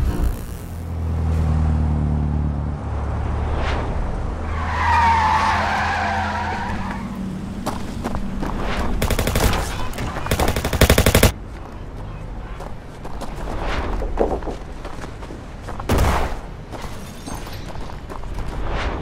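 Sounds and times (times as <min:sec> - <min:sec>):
automatic gunfire: 0:09.0 - 0:11.3.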